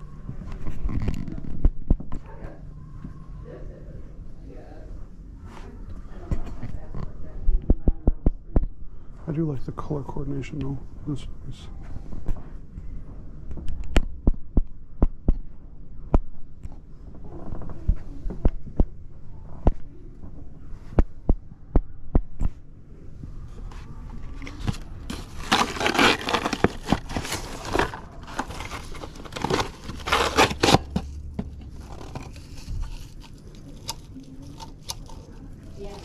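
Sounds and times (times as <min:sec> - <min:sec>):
cardboard scraping and crinkling: 0:23.5 - 0:36.0.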